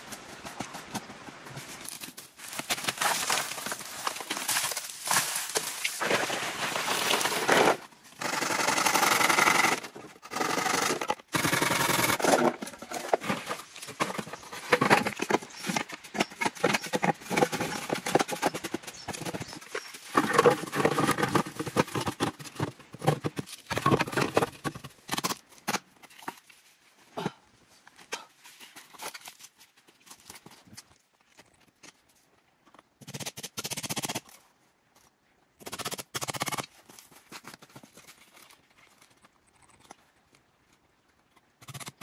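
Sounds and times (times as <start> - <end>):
rapid knocks and scrapes: 11.0 - 26.6.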